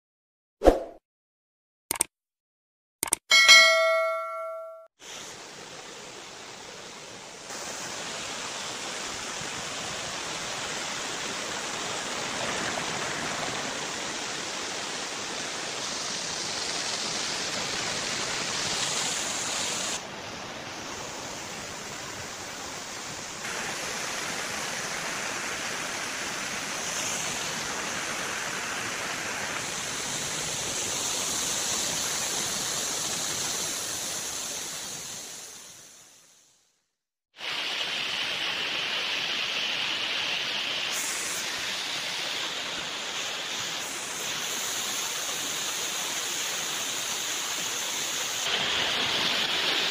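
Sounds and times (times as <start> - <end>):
waterfall rushing over rocks: 5.0 - 36.0, 37.4 - 49.9.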